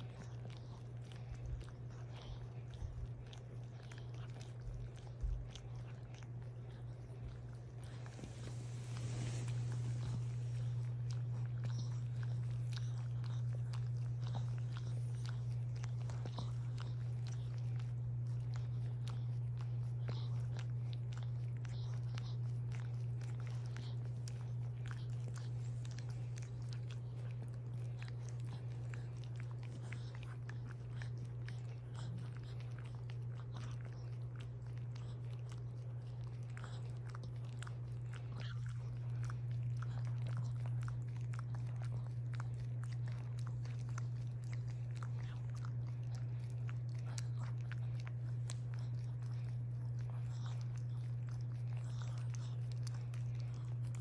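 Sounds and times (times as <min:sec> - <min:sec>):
dog licking and nibbling: 0:00.0 - 0:54.0
steady low hum: 0:00.0 - 0:54.0.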